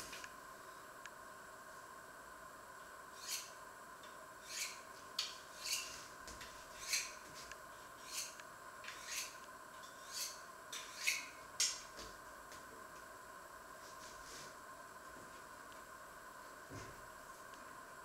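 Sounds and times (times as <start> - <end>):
faint steady hum: 0.0 - 18.0
knife scraping on honing steel: 3.2 - 3.6, 4.4 - 6.0, 6.8 - 7.2, 8.0 - 11.4.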